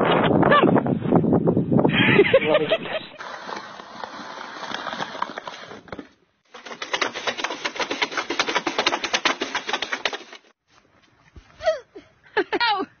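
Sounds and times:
snow shovel scraping pavement: 3.1 - 10.4.

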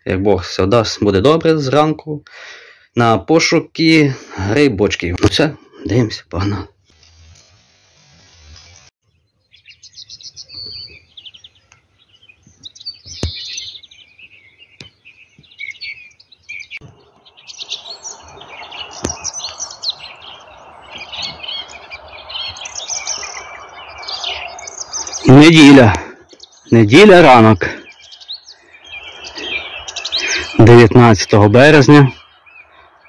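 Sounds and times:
songbirds chirping and trilling: 0.0 - 33.0
steady rushing hiss: 6.9 - 8.9.

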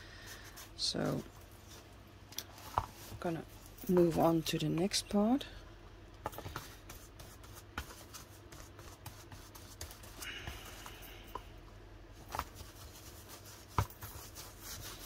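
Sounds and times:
paper and cardboard rustling: 12.2 - 15.0.

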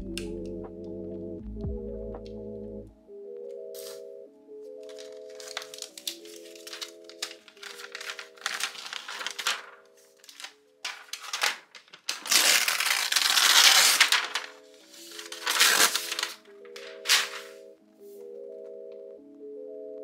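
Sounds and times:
soft background music: 0.0 - 20.0
plastic wrap crinkling: 4.8 - 17.7.

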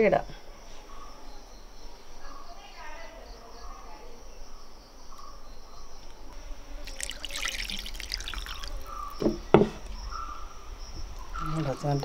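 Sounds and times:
water pouring into bowl: 6.8 - 9.4.

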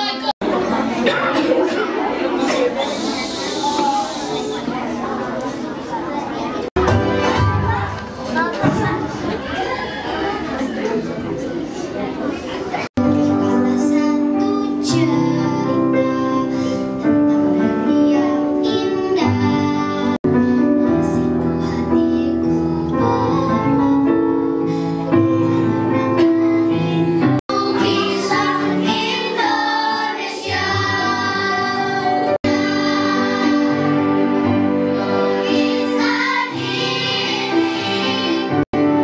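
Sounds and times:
accompanying music: 6.8 - 8.2, 13.0 - 39.0
children singing together: 13.2 - 20.2, 21.0 - 38.6.

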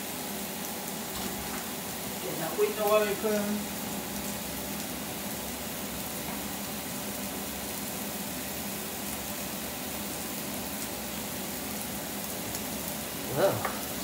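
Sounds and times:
pot boiling under a lid: 0.0 - 14.0
steak sizzling in a pan: 0.0 - 14.0.

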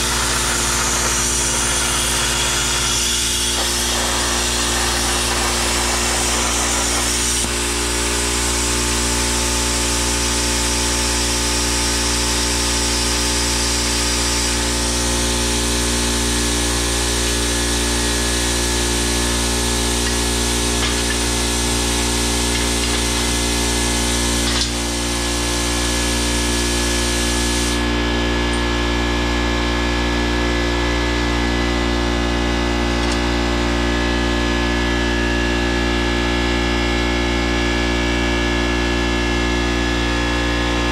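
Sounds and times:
plasma cutter humming and hissing: 0.0 - 28.5.

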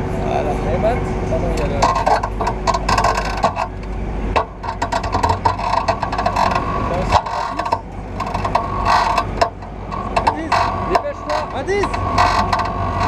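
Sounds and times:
people talking: 0.2 - 2.2, 6.8 - 7.9, 10.2 - 12.0
ride mechanism clicking and rattling: 0.3 - 13.0.

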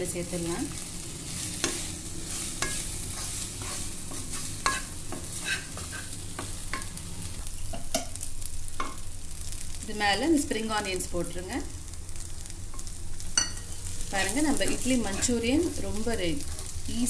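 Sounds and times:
food sizzling in oil: 0.0 - 17.0
spatula scraping a pan: 1.2 - 6.9, 12.7 - 15.8.

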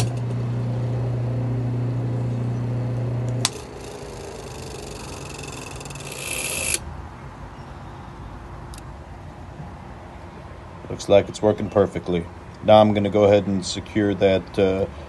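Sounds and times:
electric motor humming: 0.0 - 6.8
high whirring of coasting motor: 0.0 - 6.9.

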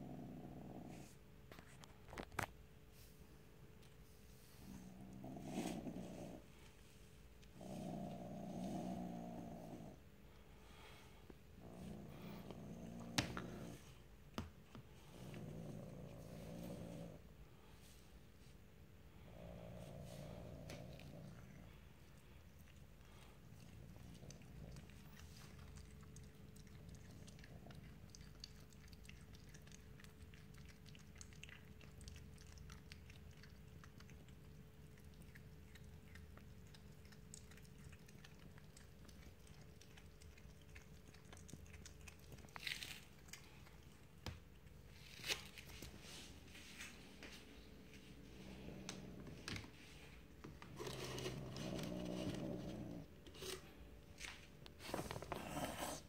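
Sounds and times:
cat chewing and crunching: 20.1 - 56.0.

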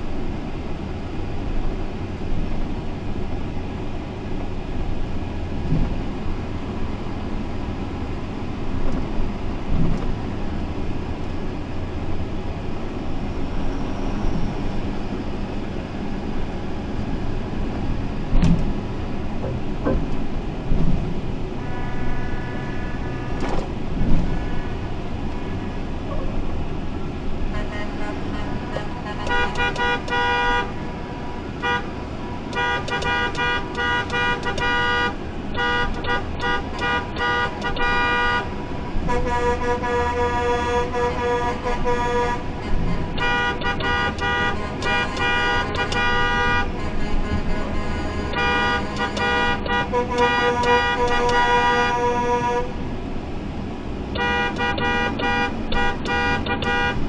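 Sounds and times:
vehicle rumbling: 0.0 - 57.0
vehicle horn beeps and blasts: 21.6 - 24.9, 27.5 - 52.8, 54.2 - 57.0.

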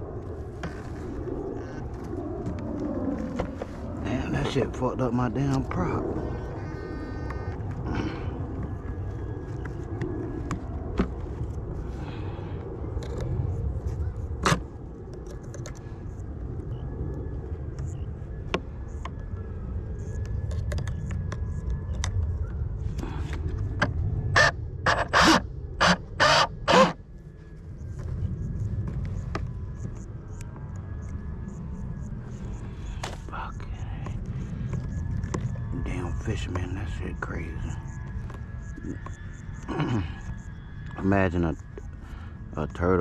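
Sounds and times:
wind rumble on microphone: 0.0 - 43.0.

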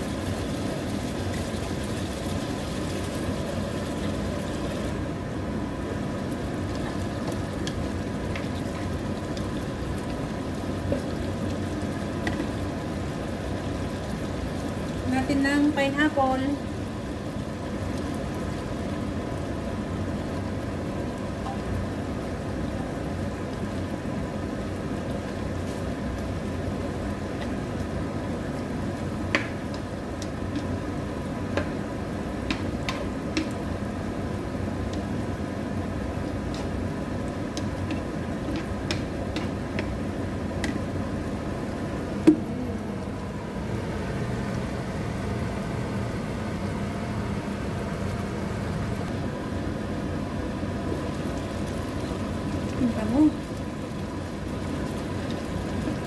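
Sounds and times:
induction hob hum: 0.0 - 56.0
stew simmering in a pan: 0.0 - 56.0.

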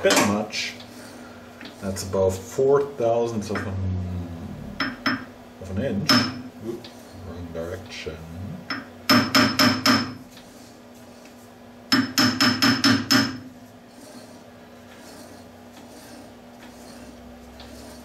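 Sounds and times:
hammer tapping: 4.8 - 5.3, 6.0 - 6.4, 8.7 - 10.2, 11.9 - 13.5.

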